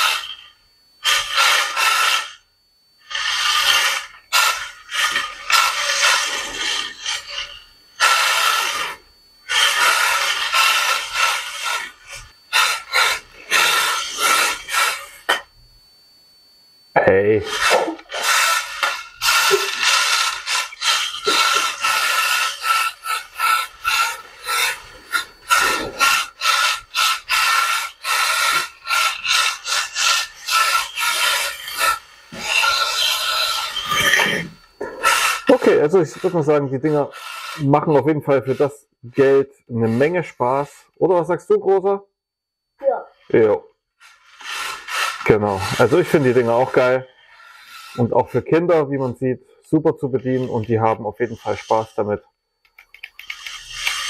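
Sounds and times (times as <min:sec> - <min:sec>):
tyres rasping on surface: 0:00.0 - 0:02.4, 0:03.0 - 0:15.5, 0:17.4 - 0:40.7, 0:43.4 - 0:49.2, 0:50.0 - 0:52.2, 0:53.0 - 0:54.0
small electric motors whining: 0:00.0 - 0:40.9, 0:42.8 - 0:54.0.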